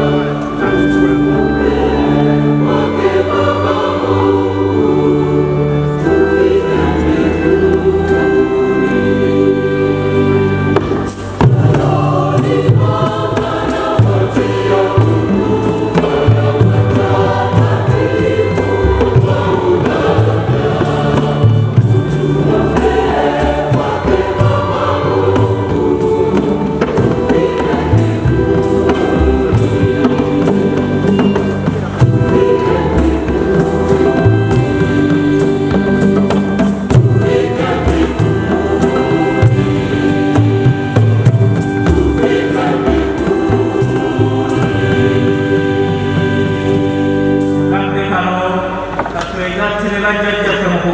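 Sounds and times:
brass band accompaniment: 0.0s - 49.8s
choir singing a hymn: 0.0s - 50.9s
hand drums beat: 10.7s - 47.0s.

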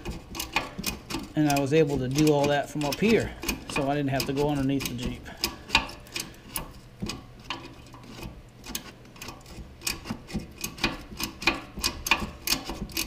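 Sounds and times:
hand ratchet clicking: 0.0s - 13.0s.

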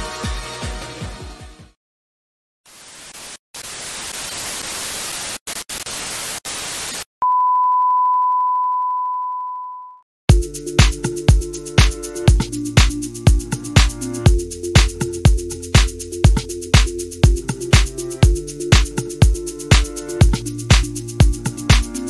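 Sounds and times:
tv static hiss: 2.7s - 7.1s
electronic music: 10.3s - 22.0s.

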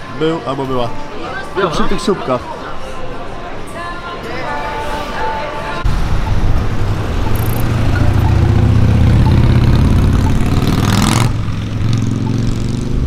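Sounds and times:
passing vehicle rush: 5.8s - 13.0s
vehicle engine droning: 5.8s - 13.0s
crosswalk locator ticks: 6.8s - 13.0s.

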